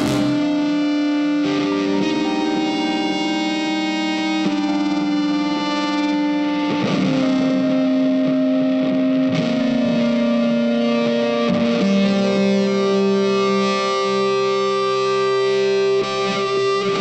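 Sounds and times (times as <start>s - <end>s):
instrumental background music: 0.0s - 1.1s.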